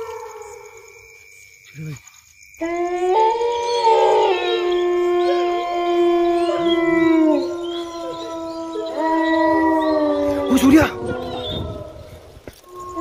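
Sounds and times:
dogs howling: 2.6s - 13.0s.

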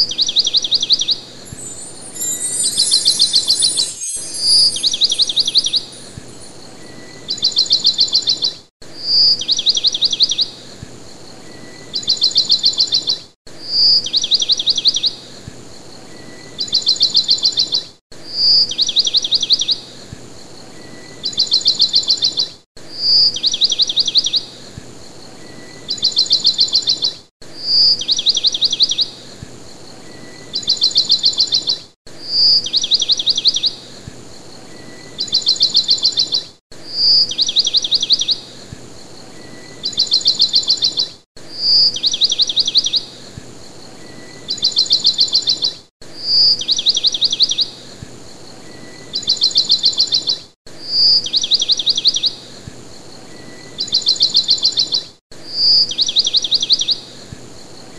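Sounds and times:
bird chirping and trilling: 0.1s - 8.5s.

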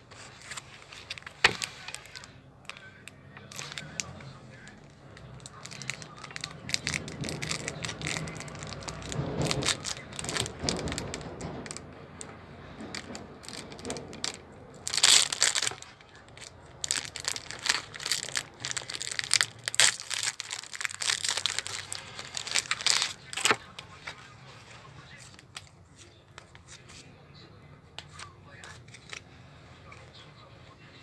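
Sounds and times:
foil wrapper crinkling and tearing: 0.2s - 11.8s, 12.9s - 24.0s.

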